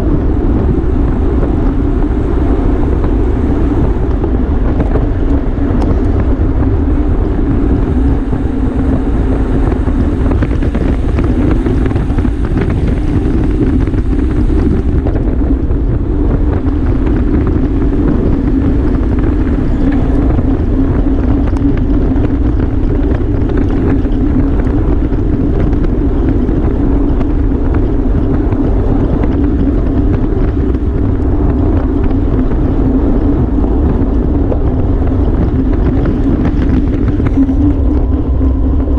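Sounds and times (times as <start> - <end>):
steady hum: 0.0 - 38.9
wind roaring over microphone: 0.0 - 38.9.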